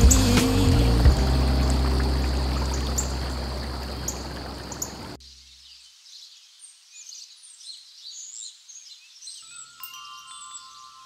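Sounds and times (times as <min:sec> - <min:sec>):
background music: 0:00.0 - 0:04.0
birds chirping: 0:00.0 - 0:06.3
faint outdoor background: 0:00.0 - 0:11.0.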